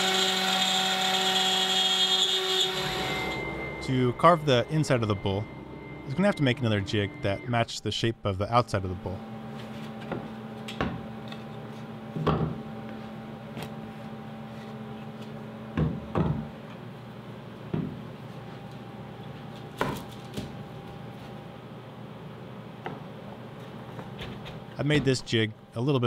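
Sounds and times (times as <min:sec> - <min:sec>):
faint steady hum: 0:02.8 - 0:26.0.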